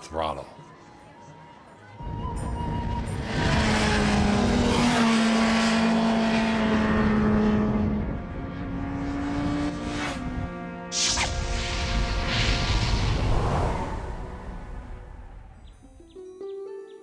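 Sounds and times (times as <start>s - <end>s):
motorcycle engine at high revs: 3.1s - 11.0s.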